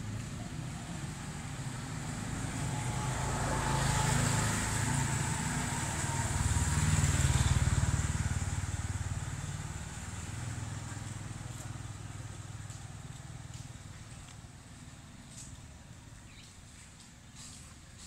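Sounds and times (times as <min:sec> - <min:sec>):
motor vehicles passing by: 0:00.0 - 0:18.0.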